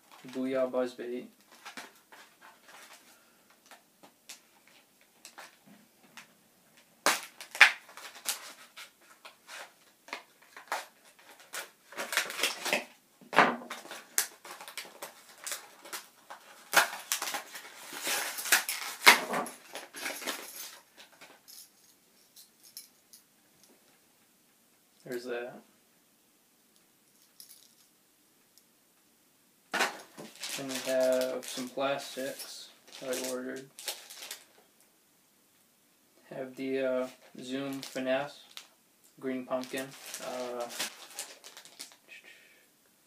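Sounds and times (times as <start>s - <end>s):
plastic packaging crinkling: 6.8s - 13.0s, 13.7s - 21.6s, 29.8s - 34.6s, 37.0s - 38.8s, 39.4s - 42.1s.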